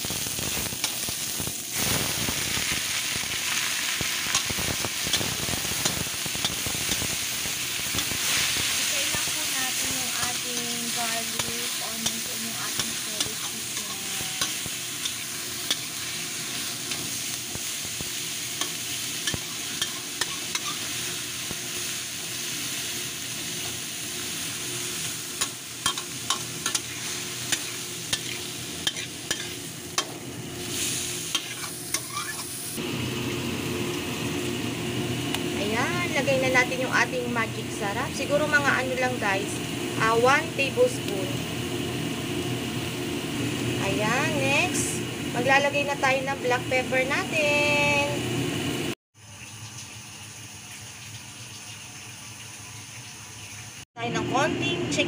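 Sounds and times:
food sizzling in hot oil: 0:00.0 - 0:55.0
spatula scraping a wok: 0:04.2 - 0:17.4, 0:18.1 - 0:22.8, 0:23.5 - 0:32.6.

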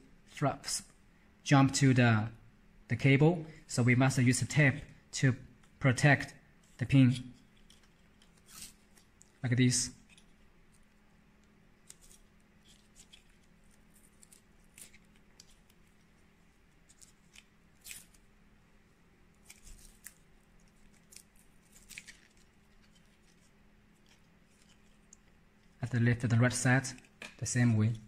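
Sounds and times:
faint steady hum: 0:00.0 - 0:28.0
adhesive tape crackling: 0:07.4 - 0:18.3, 0:19.3 - 0:25.8.

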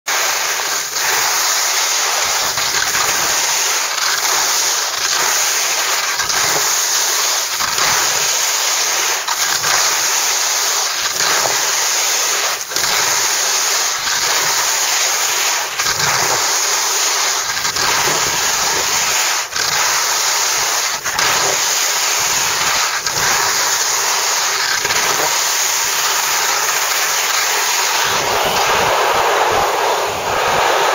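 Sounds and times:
snow scraping underfoot: 0:00.1 - 0:30.9
wind over microphone: 0:28.0 - 0:30.9.

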